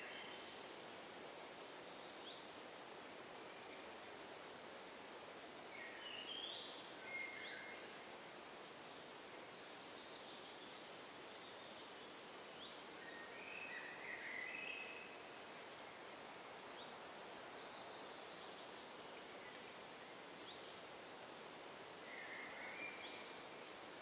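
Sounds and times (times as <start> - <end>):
faint forest ambience hiss: 0.0 - 24.0
songbird singing: 5.7 - 15.4, 16.6 - 23.7.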